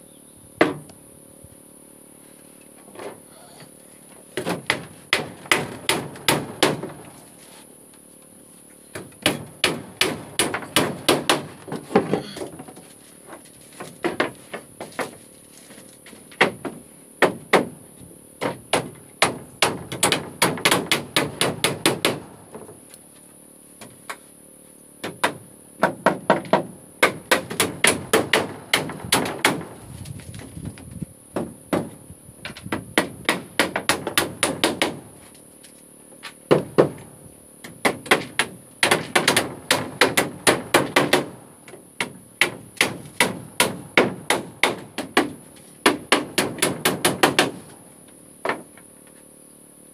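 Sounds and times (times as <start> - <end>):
hammers nailing wooden floorboards: 4.4 - 7.0, 8.9 - 12.7, 13.8 - 15.2, 16.3 - 17.8, 18.4 - 22.3, 25.0 - 29.8, 31.4 - 35.1, 36.5 - 37.0, 37.6 - 41.4, 42.0 - 47.7.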